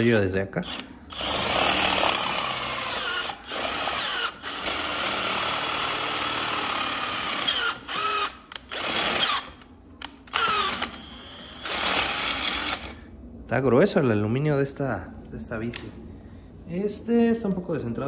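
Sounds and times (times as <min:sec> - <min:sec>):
electric drill boring through metal: 0:00.6 - 0:09.5, 0:10.3 - 0:13.0.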